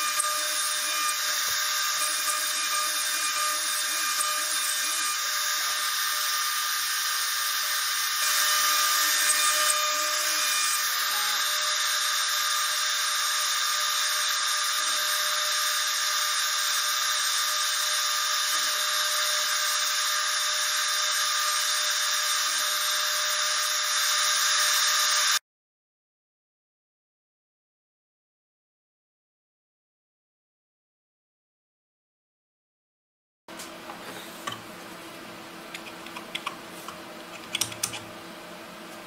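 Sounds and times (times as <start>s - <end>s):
router cutting plywood: 0.0s - 25.4s
router spindle whining: 0.0s - 25.4s.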